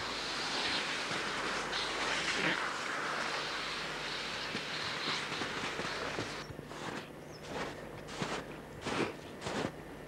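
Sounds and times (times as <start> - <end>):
footsteps in snow: 4.4 - 9.8.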